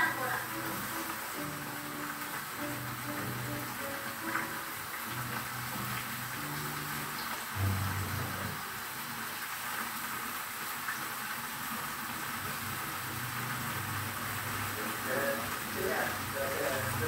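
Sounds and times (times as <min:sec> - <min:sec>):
wok simmering hiss: 0:00.0 - 0:17.0
low hum: 0:07.6 - 0:08.8.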